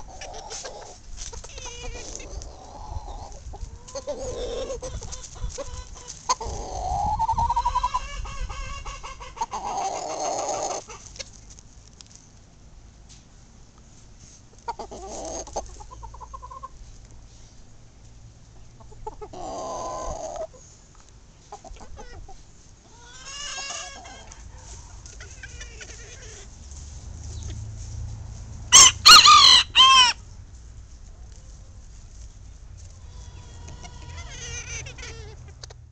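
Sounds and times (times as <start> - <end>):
chickens clucking: 0.0 - 12.3, 13.1 - 35.8
rooster crowing: 28.7 - 30.2.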